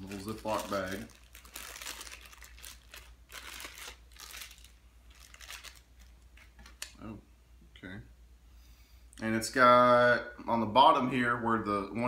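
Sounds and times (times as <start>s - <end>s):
plastic bag crinkling: 0.0s - 6.9s.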